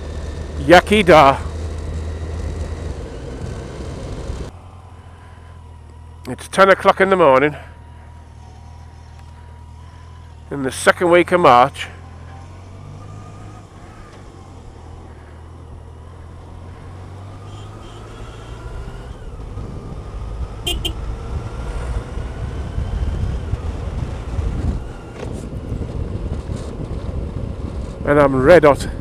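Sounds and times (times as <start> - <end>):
motorcycle engine hum: 0.0 - 29.0
wind rush: 21.3 - 29.0.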